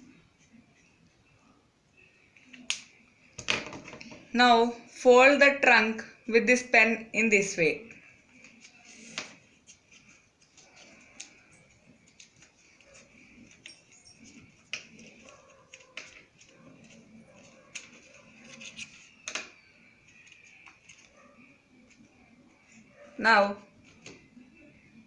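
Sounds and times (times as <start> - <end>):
paper rustling and crinkling: 8.3 - 22.3.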